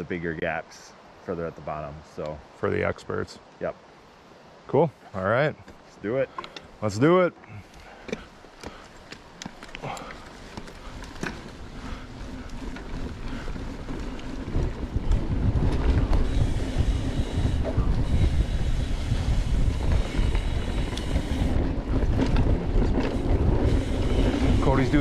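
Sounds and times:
bike tyre rumble on trail: 5.6 - 25.0
wind rushing over microphone: 10.8 - 25.0.

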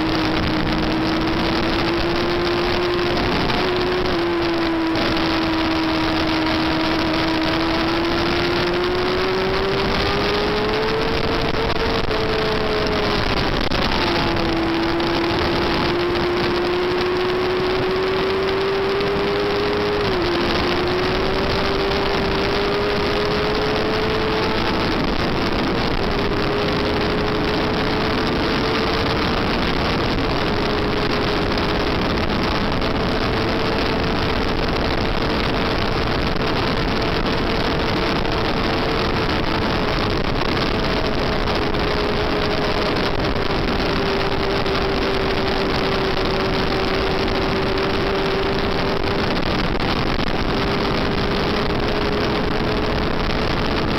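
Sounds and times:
motorcycle engine at high revs: 0.0 - 53.9
wind rush: 0.0 - 53.9.

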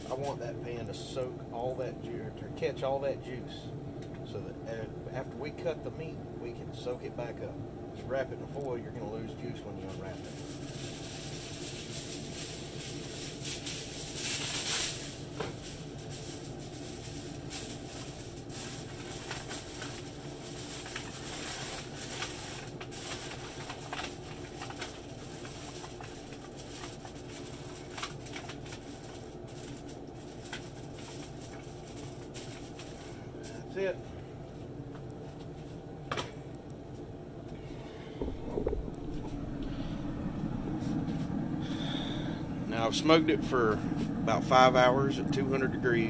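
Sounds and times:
foil crinkling and rustling: 9.8 - 33.8
foil tearing off roll: 10.0 - 33.2
low hum: 33.0 - 46.0.

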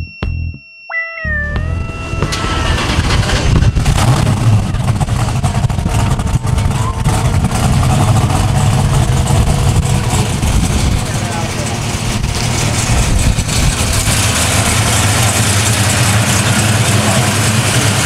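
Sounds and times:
car engine deep rumble: 1.5 - 18.0.

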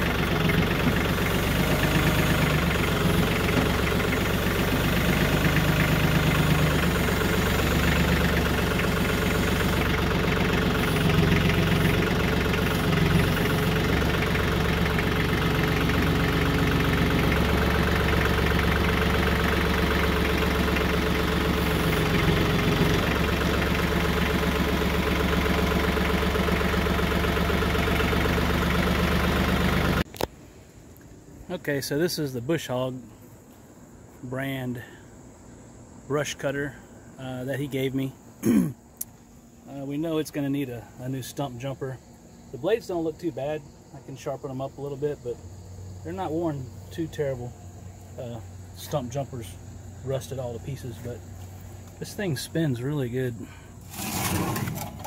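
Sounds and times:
tractor diesel engine idling: 0.0 - 30.1, 39.7 - 55.0.

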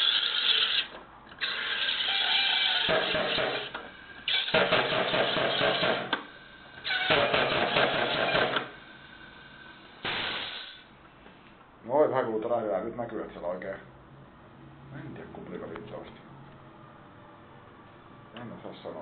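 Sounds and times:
carbonator gas rattling buzz: 0.0 - 10.9.

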